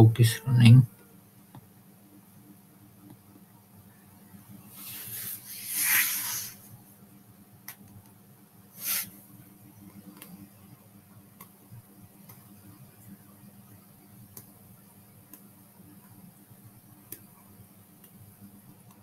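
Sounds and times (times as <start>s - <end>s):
short hissing bursts: 4.8s - 6.7s, 8.8s - 9.2s.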